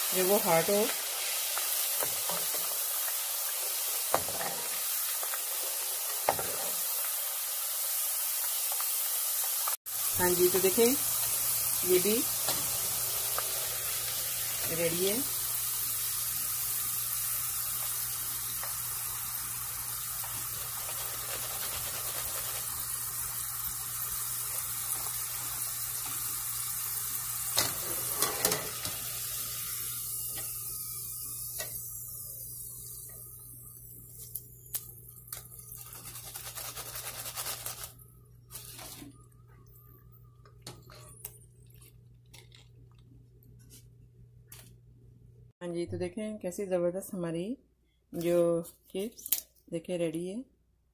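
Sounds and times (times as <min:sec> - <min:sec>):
potato slices deep-frying: 0:00.0 - 0:32.6, 0:33.8 - 0:39.0
strainer scraping pan: 0:27.6 - 0:29.0.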